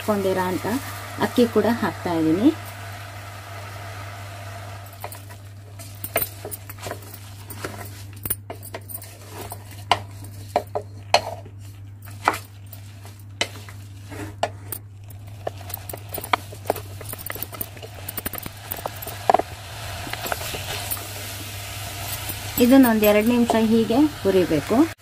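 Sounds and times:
rice frying in oil: 0.0 - 8.2, 9.0 - 25.0
spoon clinking and scraping metal pot: 4.8 - 23.9.

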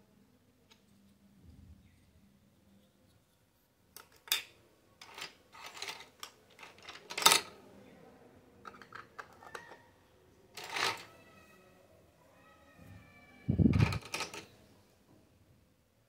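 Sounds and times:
plastic toy pieces clicking: 5.0 - 7.5, 10.6 - 11.1, 13.8 - 14.5.

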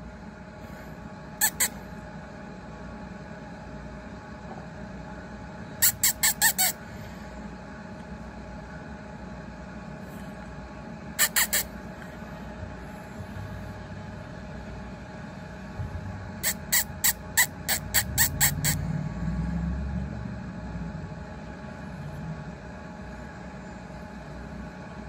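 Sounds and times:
high mouth squeaks: 1.4 - 1.8, 5.8 - 6.8, 11.2 - 11.7, 16.4 - 18.8.

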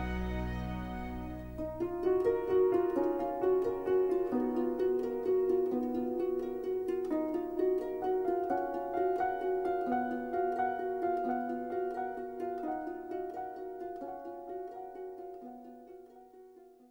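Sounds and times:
harp-like plucked string music: 0.0 - 16.9.

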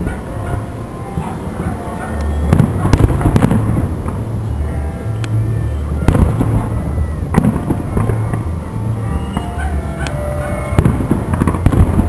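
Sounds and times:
crackle and rumble of fountains: 0.0 - 12.0
firework shells bursting with bangs: 2.4 - 4.2, 10.0 - 12.0.

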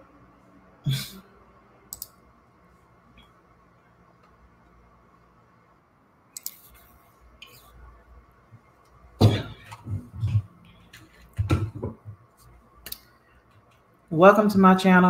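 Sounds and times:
thumps and bumps at a desk: 9.2 - 12.2.

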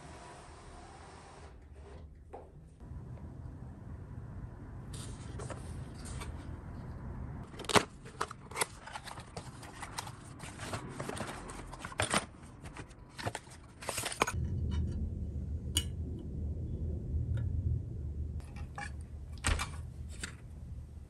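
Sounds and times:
low rumble: 2.8 - 7.5, 14.2 - 21.0.

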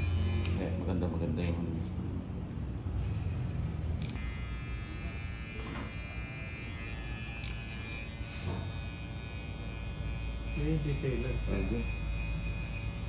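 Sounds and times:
hair clipper motor buzz: 0.0 - 0.8, 4.0 - 13.0.

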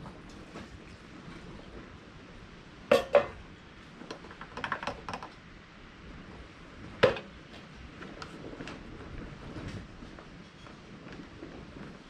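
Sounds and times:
metal jug knocking: 2.9 - 3.4.

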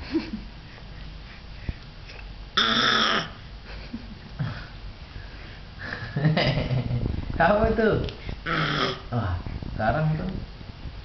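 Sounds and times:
baby growling: 2.6 - 3.4, 8.4 - 9.1.

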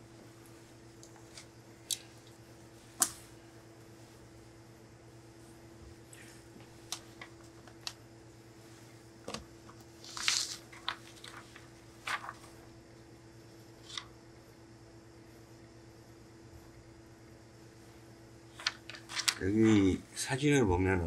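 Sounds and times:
faint steady hum: 0.0 - 21.0
paper rustling: 9.9 - 12.7, 18.5 - 20.0.

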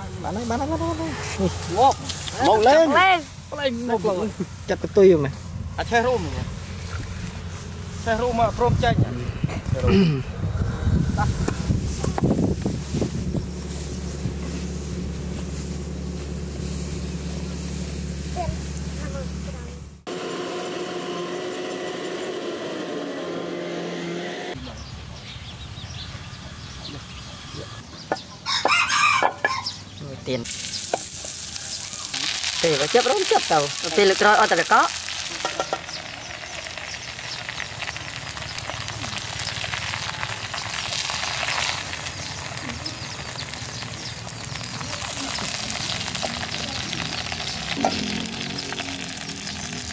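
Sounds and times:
hot oil sizzling and crackling: 0.0 - 5.1, 11.1 - 19.0, 30.4 - 49.9
motor humming: 10.4 - 24.6.

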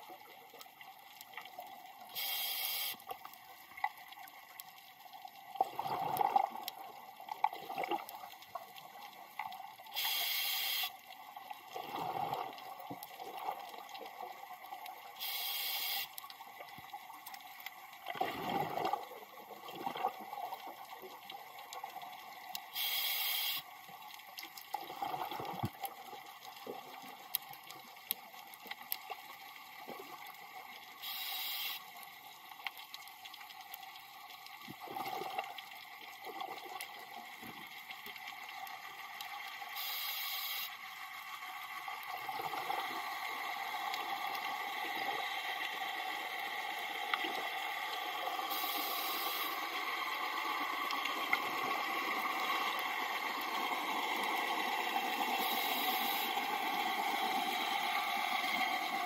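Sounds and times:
regulator inhale hiss: 2.1 - 3.1, 9.9 - 11.0, 15.2 - 16.2, 22.7 - 23.7, 31.0 - 31.9, 39.8 - 40.8, 48.4 - 49.8, 55.3 - 56.5
exhaust bubbling underwater: 18.1 - 20.1.

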